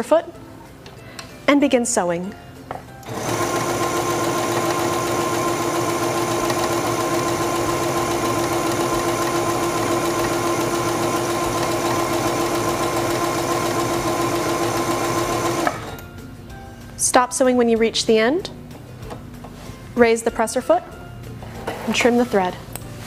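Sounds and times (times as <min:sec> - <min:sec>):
sewing machine sewing: 0:03.0 - 0:16.0.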